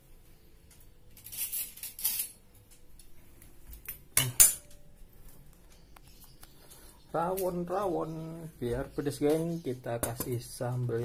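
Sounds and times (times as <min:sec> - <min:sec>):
cutlery and dishes rattling: 0:01.1 - 0:02.4, 0:03.8 - 0:04.8.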